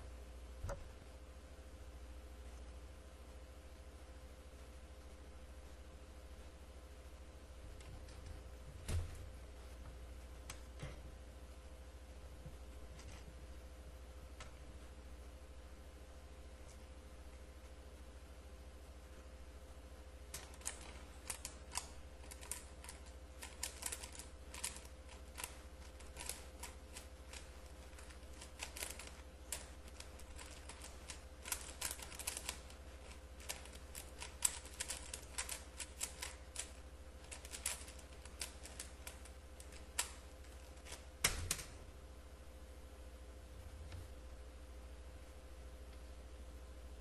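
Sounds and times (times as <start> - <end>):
puzzle cube clicking: 20.3 - 41.7.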